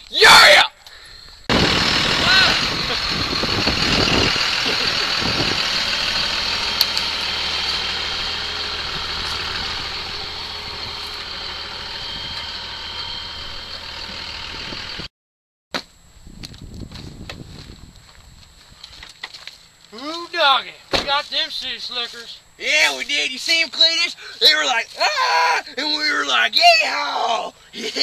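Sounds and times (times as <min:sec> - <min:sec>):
pickup truck engine running: 0:01.5 - 0:15.1.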